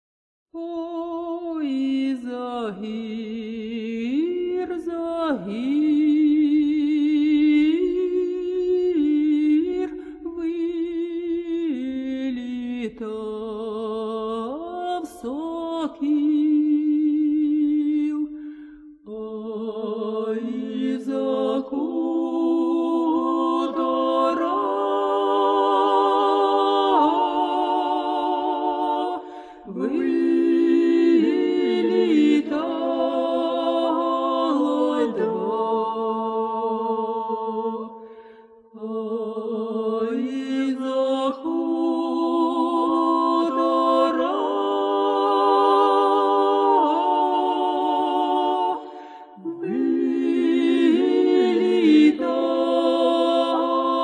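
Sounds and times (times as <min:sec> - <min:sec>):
several voices singing together: 0:19.1 - 0:38.1, 0:38.8 - 0:54.0.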